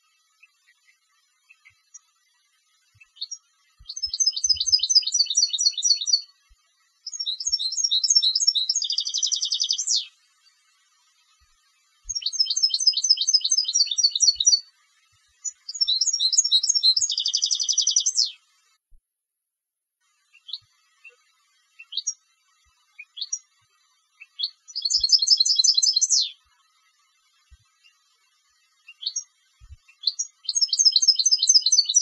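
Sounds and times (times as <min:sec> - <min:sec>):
bird buzzing trill: 0:03.0 - 0:06.3, 0:07.0 - 0:10.1, 0:12.0 - 0:14.7, 0:15.4 - 0:18.3, 0:24.3 - 0:26.3, 0:28.8 - 0:32.0
bird twittering: 0:03.0 - 0:06.3, 0:07.0 - 0:10.1, 0:12.1 - 0:14.7, 0:15.4 - 0:18.4, 0:24.2 - 0:26.4, 0:28.9 - 0:29.3, 0:29.9 - 0:32.0.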